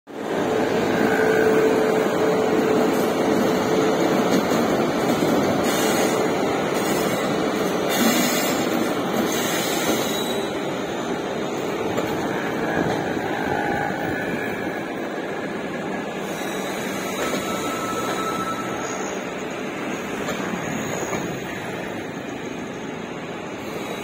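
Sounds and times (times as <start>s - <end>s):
electric locomotive passing: 0.1s - 24.0s.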